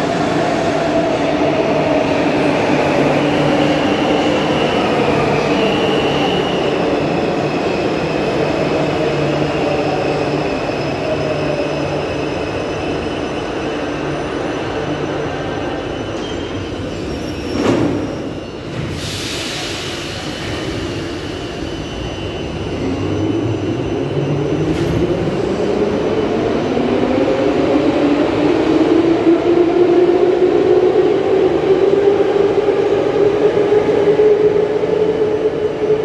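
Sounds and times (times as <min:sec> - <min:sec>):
hiss of air: 0:18.9 - 0:21.6.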